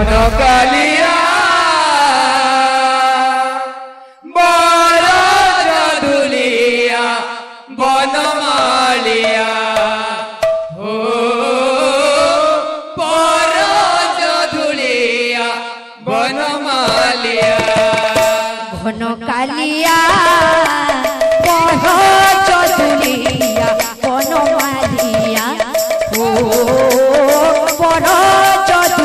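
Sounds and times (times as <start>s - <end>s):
men chanting a devotional song: 0.0s - 19.0s, 19.7s - 29.0s
hand-played barrel drum: 8.6s - 10.8s, 16.8s - 18.6s, 19.9s - 29.0s.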